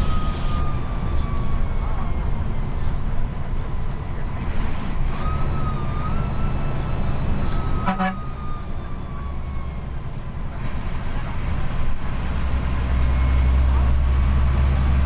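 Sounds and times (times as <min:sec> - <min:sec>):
bus diesel engine cruising: 0:00.0 - 0:15.0
road noise: 0:00.0 - 0:15.0
horn toot: 0:07.8 - 0:08.3.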